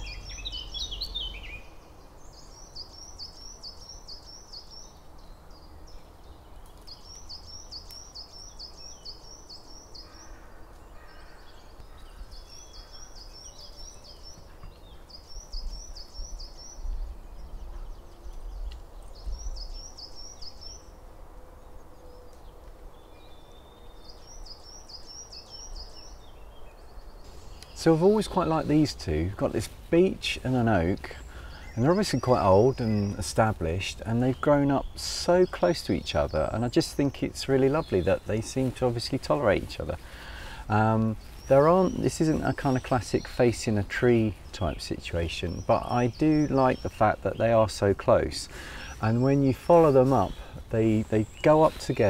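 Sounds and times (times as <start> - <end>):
songbird singing high notes: 0.0 - 5.0, 23.2 - 52.0.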